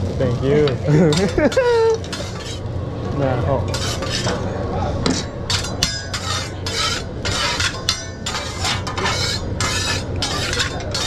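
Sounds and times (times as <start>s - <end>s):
metal spatula scraping griddle: 0.9s - 2.7s, 3.7s - 11.0s.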